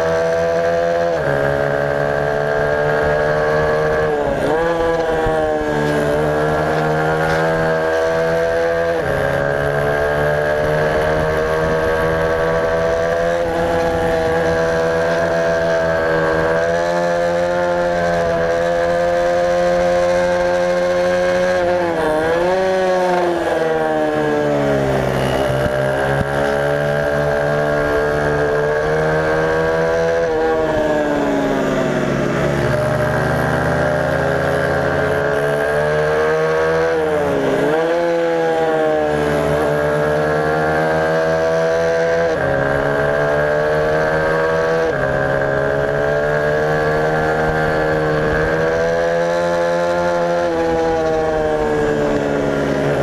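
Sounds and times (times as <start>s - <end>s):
motorcycle engine at high revs: 0.0s - 53.0s.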